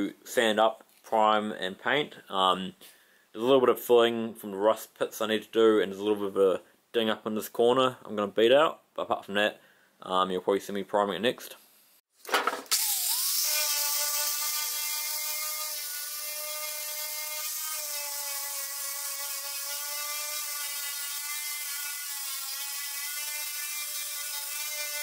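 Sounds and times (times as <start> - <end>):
angle grinder with wire brush: 12.5 - 25.0.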